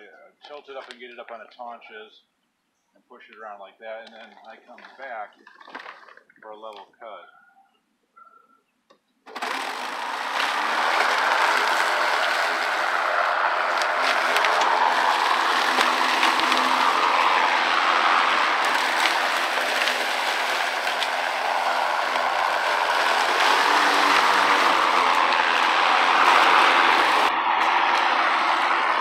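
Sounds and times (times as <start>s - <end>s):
electric lawn mower running: 9.3s - 29.0s.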